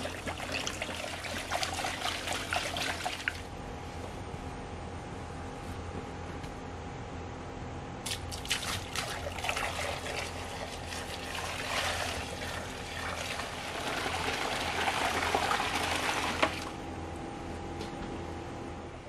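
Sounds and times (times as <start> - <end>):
liquid pouring and splashing: 0.0 - 3.5, 8.1 - 16.7.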